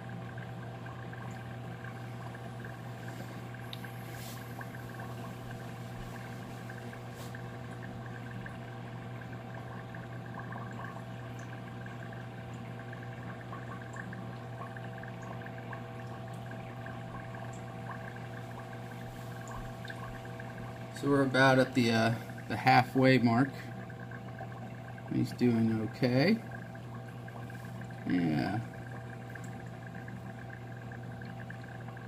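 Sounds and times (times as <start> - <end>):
aquarium pump humming: 0.0 - 32.0
bubbling water: 0.0 - 32.0.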